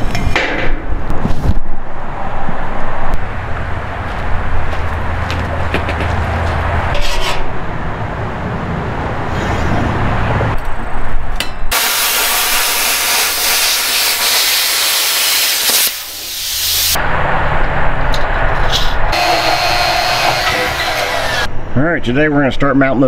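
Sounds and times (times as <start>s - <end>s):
plasma cutter hissing: 11.7s - 17.0s.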